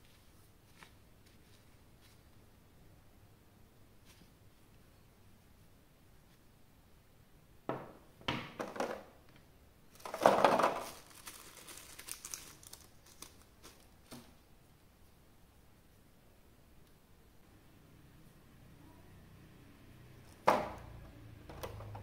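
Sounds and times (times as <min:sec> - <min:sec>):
packaging crinkling: 0:09.9 - 0:14.4.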